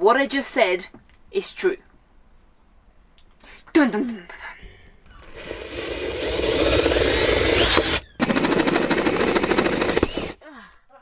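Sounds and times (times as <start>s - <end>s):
cordless drill boring through metal: 5.2s - 10.4s
fast chattering rattle: 5.2s - 10.4s.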